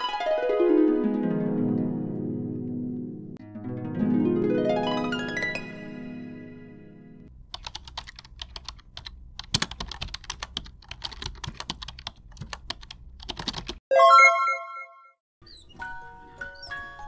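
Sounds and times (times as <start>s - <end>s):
plucked harp-like run: 0.0s - 7.3s.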